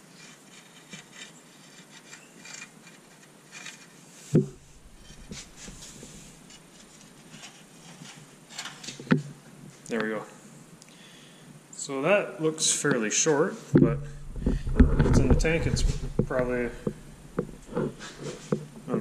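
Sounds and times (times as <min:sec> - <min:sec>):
metal rod scraping: 0:04.5 - 0:08.8, 0:13.8 - 0:18.7.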